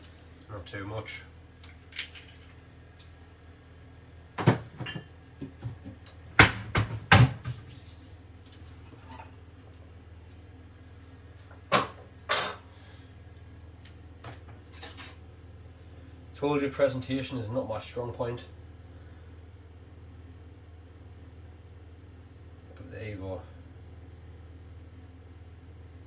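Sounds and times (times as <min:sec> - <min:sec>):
dishes and cupboards clattering: 0:04.4 - 0:05.8, 0:11.7 - 0:12.7.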